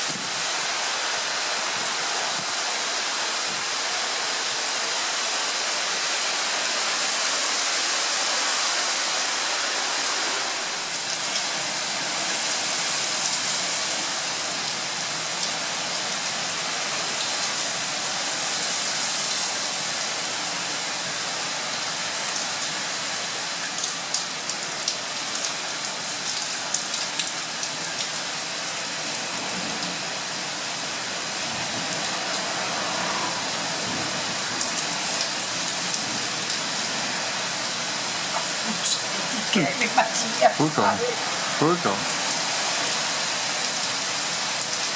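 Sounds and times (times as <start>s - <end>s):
heavy rain hissing: 0.0s - 44.9s
raindrops ticking on surfaces: 10.9s - 32.9s, 33.5s - 44.9s.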